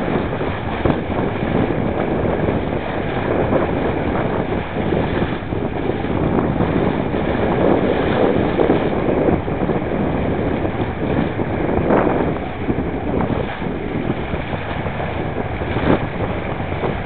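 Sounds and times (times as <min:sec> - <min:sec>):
water splashing along hull: 0:00.0 - 0:17.0
wind buffeting microphone: 0:00.0 - 0:17.0.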